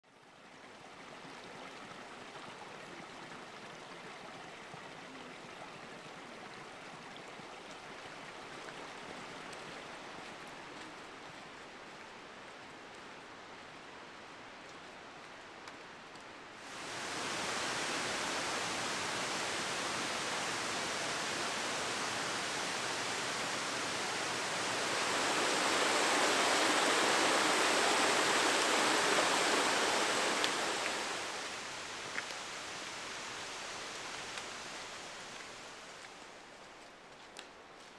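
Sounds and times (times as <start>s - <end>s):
rushing mountain stream: 0.1s - 37.9s.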